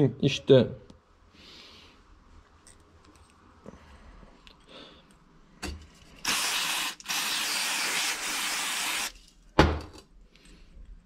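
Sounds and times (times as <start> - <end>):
aerosol spray can hissing: 6.2 - 9.1.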